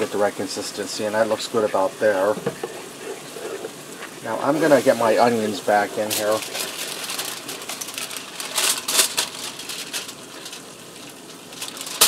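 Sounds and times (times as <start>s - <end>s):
wooden spoon scraping a skillet: 2.1s - 7.9s.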